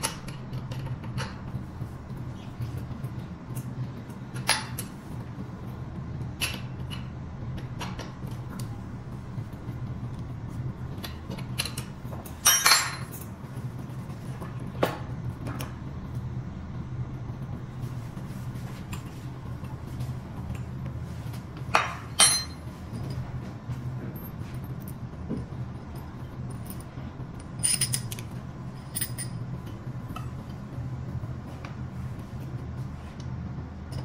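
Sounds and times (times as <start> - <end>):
steady low hum: 0.0 - 34.0
metal tools clinking and knocking: 11.6 - 13.3, 21.8 - 23.3, 26.6 - 29.4.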